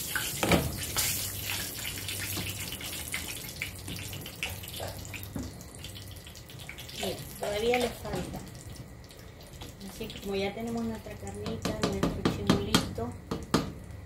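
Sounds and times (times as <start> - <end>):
pot of beans boiling: 0.0 - 14.0
wooden spoon knocking pot: 11.4 - 13.8.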